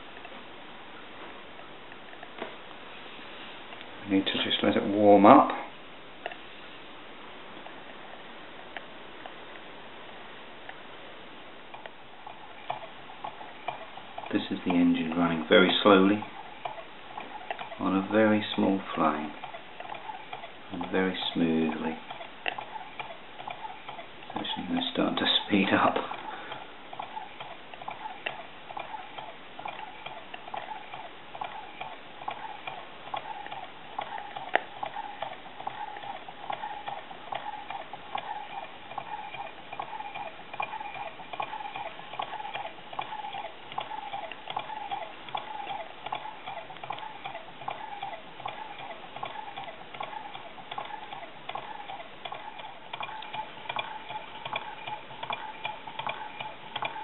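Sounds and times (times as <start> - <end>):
small engine rhythmic ticking: 11.6 - 57.0.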